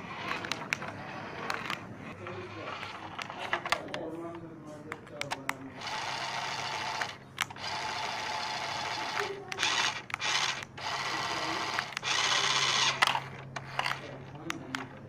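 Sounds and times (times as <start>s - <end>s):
toy motor and gears whirring: 0.0s - 4.0s, 5.2s - 15.0s
sharp clicks: 0.3s - 1.8s, 4.9s - 15.0s.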